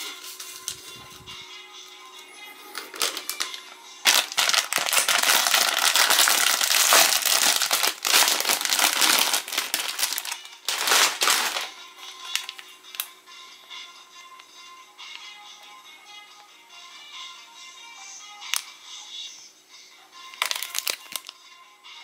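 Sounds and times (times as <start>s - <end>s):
plastic wrapper crinkling: 2.7s - 13.1s, 20.3s - 21.4s.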